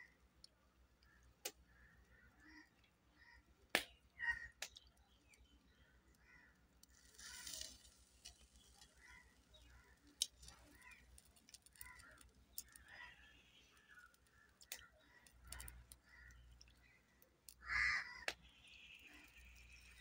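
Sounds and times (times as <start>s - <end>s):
faint bird calls: 1.0s - 3.5s, 4.2s - 4.6s
crow cawing: 1.8s - 3.4s, 4.2s - 4.6s, 17.6s - 18.3s
small clicks: 6.1s - 20.0s.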